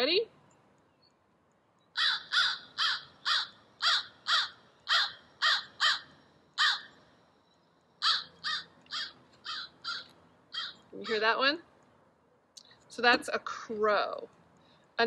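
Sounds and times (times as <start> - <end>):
recorded crow caws from speaker: 2.0 - 7.0, 8.0 - 11.4.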